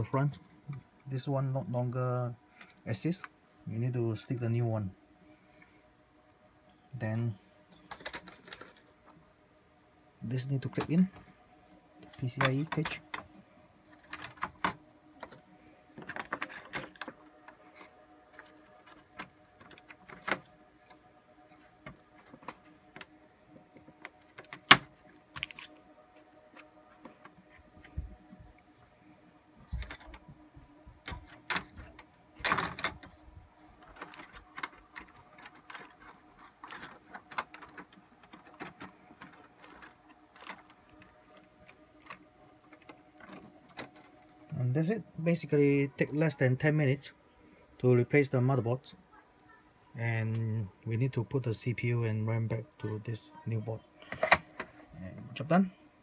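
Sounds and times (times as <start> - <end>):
faint steady hum: 0.0 - 56.0
server parts clicking and rattling: 7.7 - 9.2, 10.3 - 28.3, 29.4 - 44.9.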